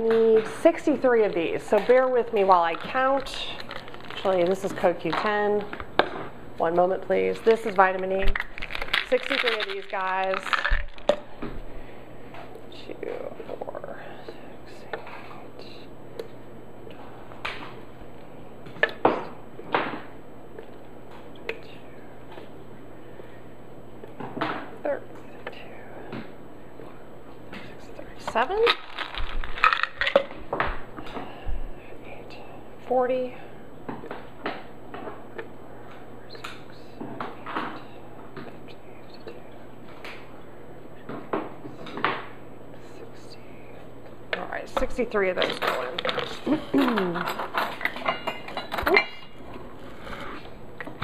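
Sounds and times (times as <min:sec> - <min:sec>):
capsules dropping into plastic jar: 0:07.7 - 0:11.2.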